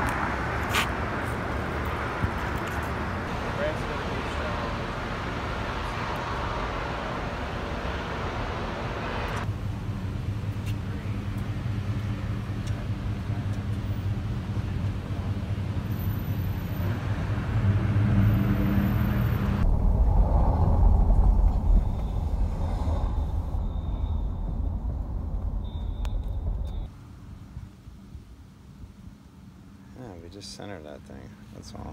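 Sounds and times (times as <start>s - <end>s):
city street traffic hum: 0.0s - 31.9s
car driving by rumble: 3.2s - 26.9s.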